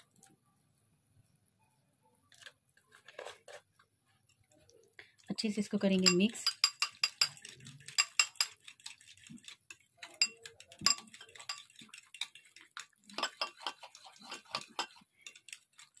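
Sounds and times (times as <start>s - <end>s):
utensil tapping against a bowl: 6.0s - 8.6s, 10.1s - 11.8s.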